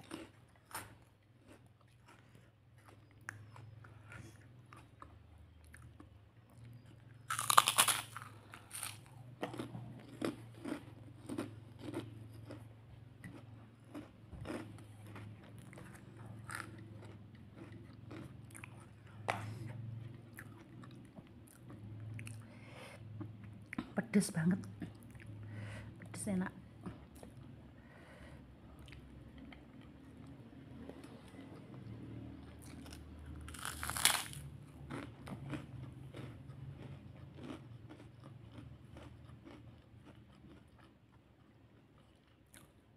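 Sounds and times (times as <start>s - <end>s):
person chewing and crunching food: 0.0s - 26.0s, 26.8s - 42.9s.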